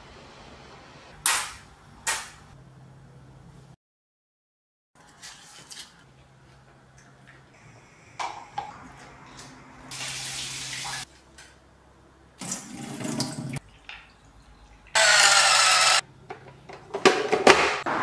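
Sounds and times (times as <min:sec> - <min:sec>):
electric whisk whirring: 0:15.0 - 0:16.0.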